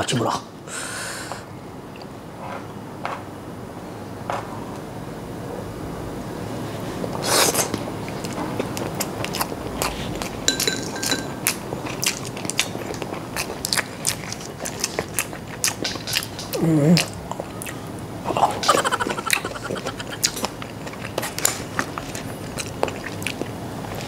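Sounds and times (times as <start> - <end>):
chewing and mouth smacks: 7.5 - 17.8, 18.4 - 24.0
person humming: 16.5 - 17.2, 18.3 - 20.4.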